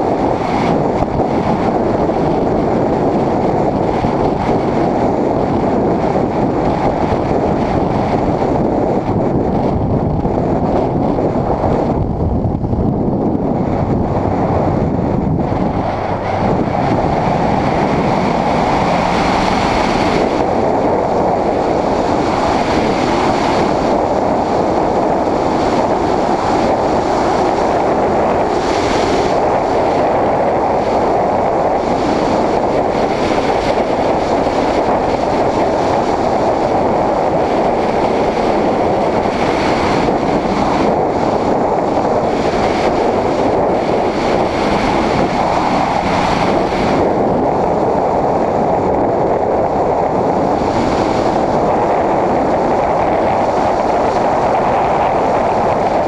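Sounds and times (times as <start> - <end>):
wind and road noise: 0.0 - 56.0.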